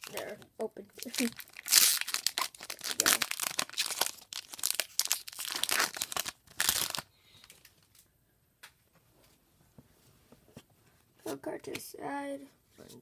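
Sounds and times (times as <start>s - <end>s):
foil wrapper crinkling: 1.0s - 8.0s.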